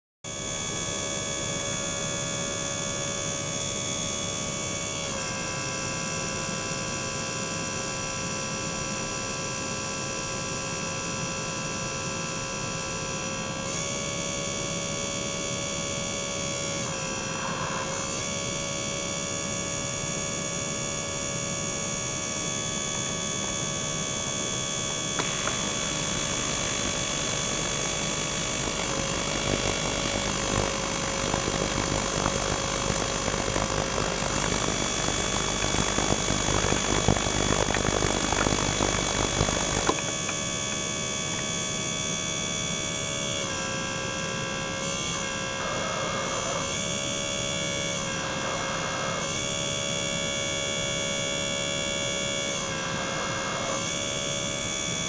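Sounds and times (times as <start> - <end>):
electric hum: 22.3 - 43.6.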